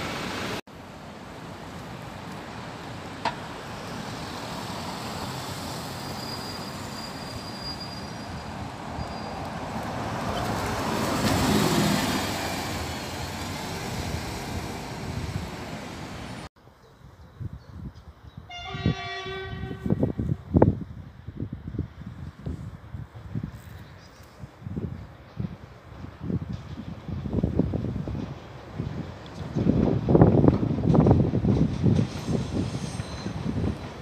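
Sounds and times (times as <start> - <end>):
bus driving past: 0.0 - 16.5
train horn: 18.5 - 20.2.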